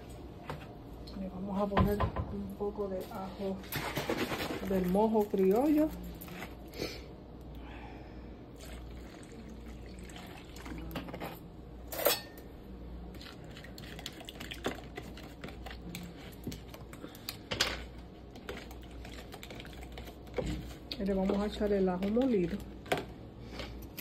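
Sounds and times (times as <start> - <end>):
marinade pouring into tub: 8.6 - 11.0
spoon stirring in plastic tub: 13.2 - 23.8.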